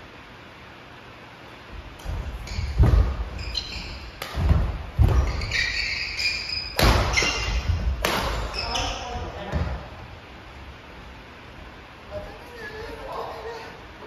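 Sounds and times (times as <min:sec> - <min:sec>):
shoes squeaking on wooden floor: 0:02.0 - 0:09.7
rackets striking shuttlecock: 0:04.1 - 0:05.6, 0:06.6 - 0:08.5.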